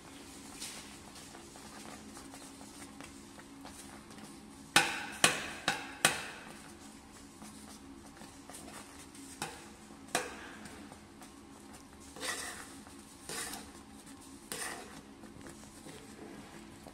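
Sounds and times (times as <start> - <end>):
spoon stirring in frying pan: 14.4 - 15.3.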